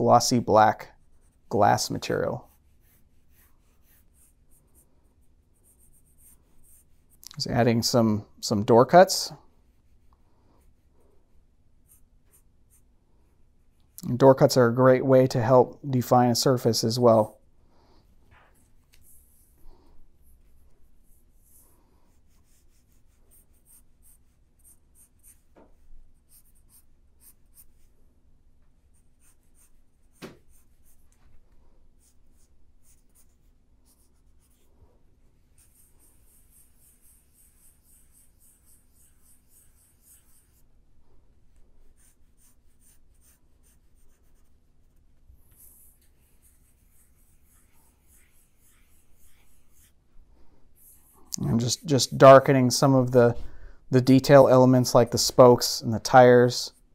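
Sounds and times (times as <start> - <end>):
pencil scratching on paper: 0.9 - 7.2, 9.5 - 14.0, 18.5 - 28.0, 28.8 - 31.2, 32.0 - 40.8, 41.5 - 52.5.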